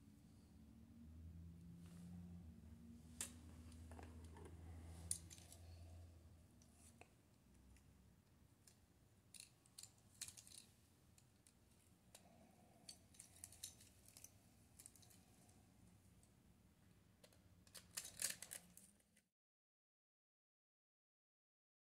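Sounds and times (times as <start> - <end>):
small clicks of camera parts: 8.6 - 12.3, 17.2 - 19.2.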